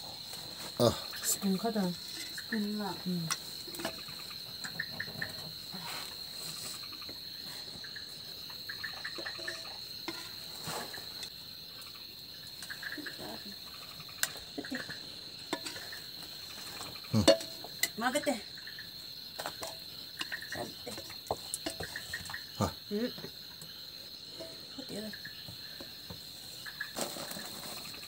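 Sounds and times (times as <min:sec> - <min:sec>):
crickets trilling: 0:00.0 - 0:28.0
ladle and spoon clinking on pots: 0:15.5 - 0:16.0, 0:17.2 - 0:18.0.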